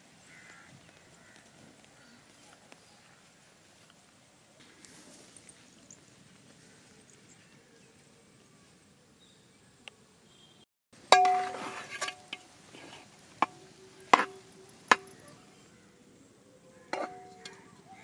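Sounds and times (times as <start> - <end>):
metal utensil striking a pot: 11.1 - 12.5, 13.4 - 15.3, 16.9 - 17.8.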